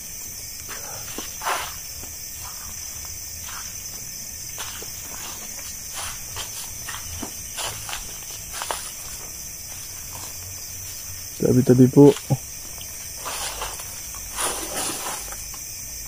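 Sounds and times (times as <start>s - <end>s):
night insects chirping: 0.0s - 16.0s
footsteps crunching dry leaves: 0.7s - 15.5s.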